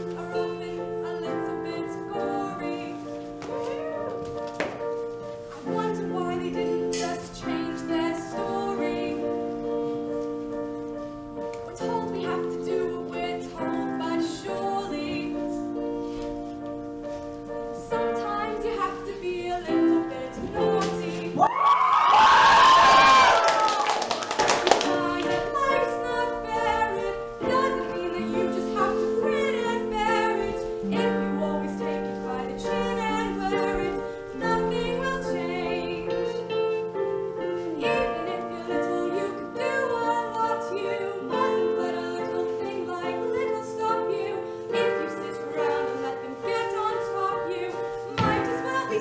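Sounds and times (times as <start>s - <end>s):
piano accompaniment: 0.0s - 49.0s
person singing with vibrato: 5.5s - 10.2s, 17.8s - 21.6s, 24.8s - 49.0s.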